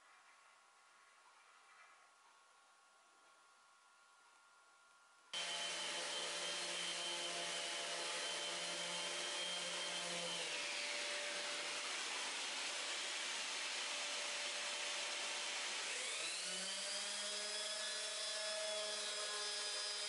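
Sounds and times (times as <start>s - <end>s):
shop vacuum running: 5.4s - 20.0s.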